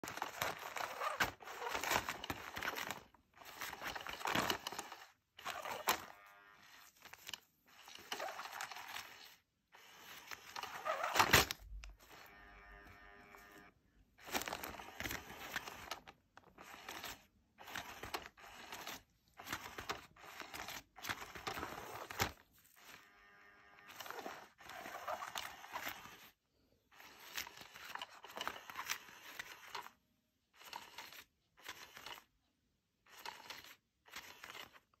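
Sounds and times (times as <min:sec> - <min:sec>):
faint motor hum: 0:00.1 - 0:26.3.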